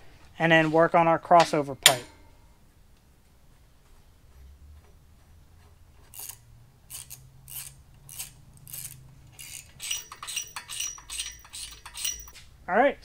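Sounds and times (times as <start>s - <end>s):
hand ratchet clicking: 6.1s - 12.4s.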